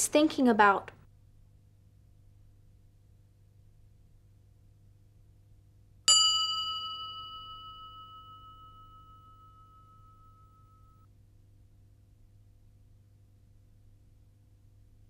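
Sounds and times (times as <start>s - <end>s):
bell ringing out: 6.1s - 11.0s.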